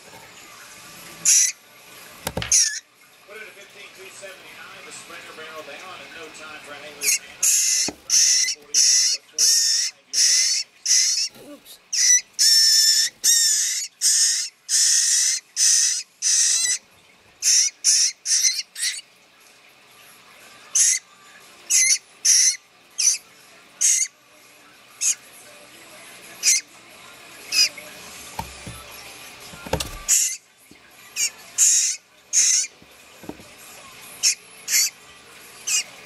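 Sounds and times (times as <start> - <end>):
fledgling bird begging calls: 7.0 - 11.3.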